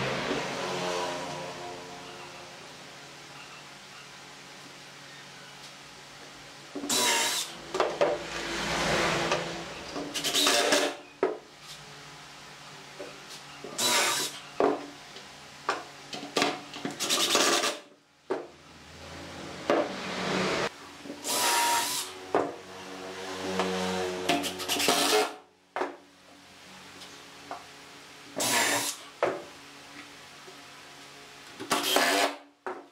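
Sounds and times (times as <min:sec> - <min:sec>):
cordless drill driving screws: 0:31.7 - 0:32.4.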